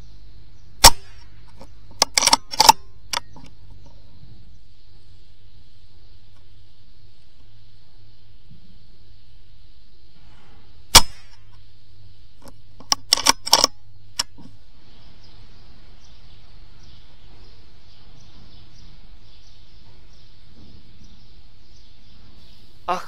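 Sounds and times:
faint bird chirping: 0:00.0 - 0:12.9, 0:13.8 - 0:23.0
air rifle shot: 0:00.8 - 0:01.4, 0:10.9 - 0:11.5
sharp clicks: 0:00.8 - 0:04.0, 0:10.9 - 0:11.6, 0:12.4 - 0:14.6.

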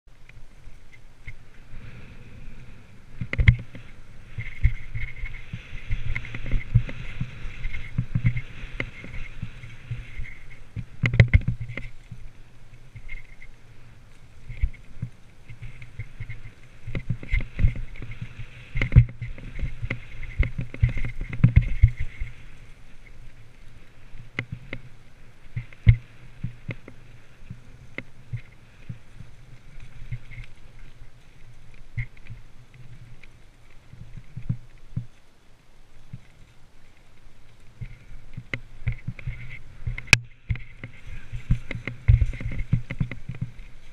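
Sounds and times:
bike rattling: 0:00.1 - 0:43.9
continuous rushing noise: 0:00.1 - 0:43.9.

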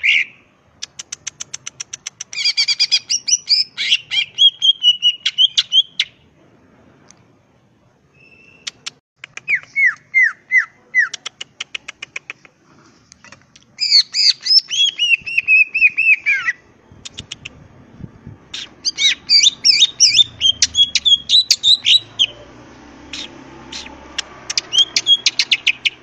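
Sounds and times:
bird singing ticks and whistles: 0:23.2 - 0:26.0.

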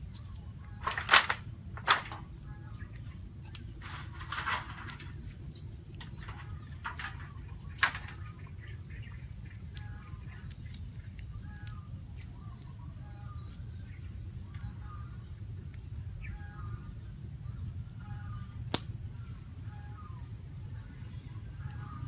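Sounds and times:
chirping animal calls: 0:00.0 - 0:15.5.

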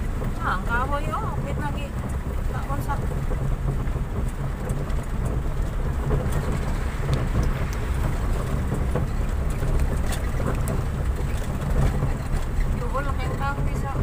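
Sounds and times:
light ticks and rattles: 0:00.0 - 0:14.0
vehicle engine and road rumble: 0:00.0 - 0:14.0.

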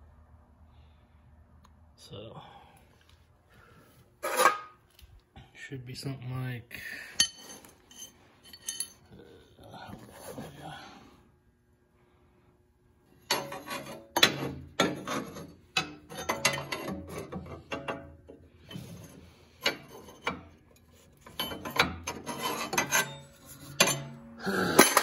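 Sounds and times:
steel bar scraping on steel tubes: 0:04.2 - 0:04.8, 0:13.3 - 0:25.0.

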